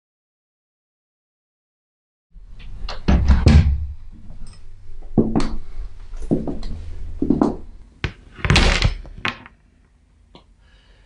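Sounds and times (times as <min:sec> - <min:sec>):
door knocks and thuds: 0:03.0 - 0:03.9.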